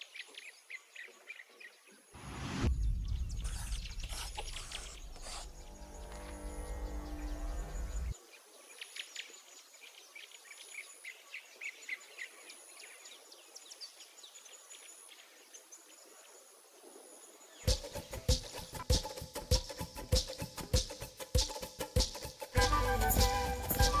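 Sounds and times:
birds chirping: 2.7s - 9.4s
upbeat percussive music: 17.7s - 24.0s
music sting: 22.6s - 24.0s.

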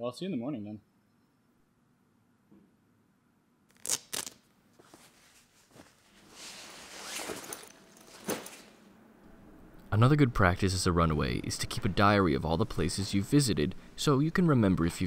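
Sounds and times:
zipper being drawn: 3.7s - 8.8s
fabric rustling: 3.8s - 8.9s.

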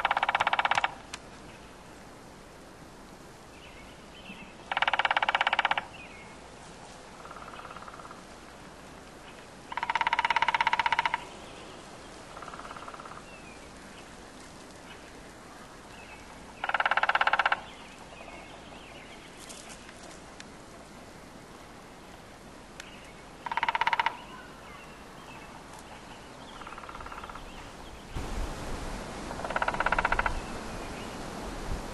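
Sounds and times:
woodpecker drumming on tree: 0.0s - 1.1s, 4.7s - 6.0s, 7.2s - 8.2s, 9.7s - 11.4s, 12.4s - 13.2s, 16.6s - 17.8s, 23.4s - 24.4s, 26.6s - 27.4s, 29.3s - 30.5s.

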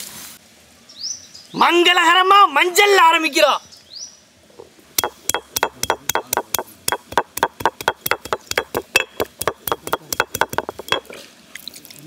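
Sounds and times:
rapid sharp pounding knocks: 5.0s - 11.1s.

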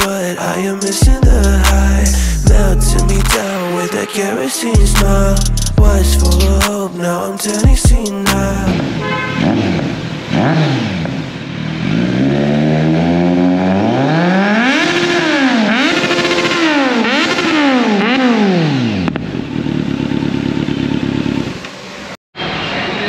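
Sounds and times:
motorcycle engine revving: 1.0s - 3.5s, 8.4s - 22.1s.

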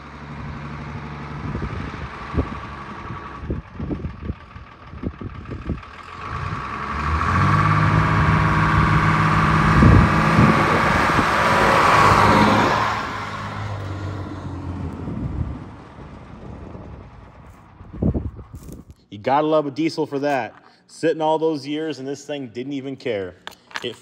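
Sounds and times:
diesel truck on gravel road: 0.0s - 19.0s.

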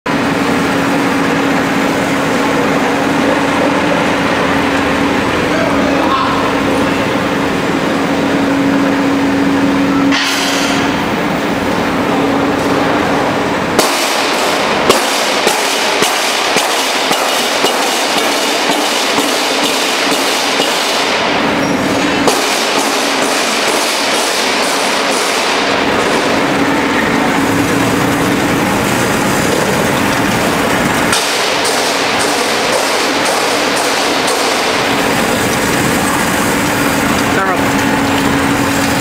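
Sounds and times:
mechanical clacking: 13.8s - 39.0s.

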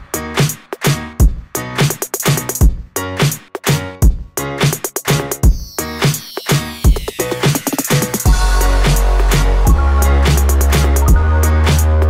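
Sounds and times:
steady drum beat: 0.0s - 6.2s, 6.8s - 11.9s
electronic music: 0.0s - 12.0s
deep bass line: 8.3s - 12.0s.

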